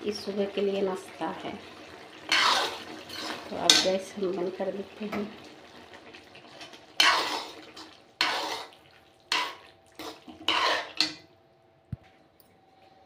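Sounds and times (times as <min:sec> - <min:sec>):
spoon scraping metal pot: 0:02.3 - 0:03.9, 0:07.0 - 0:07.6, 0:08.2 - 0:11.2.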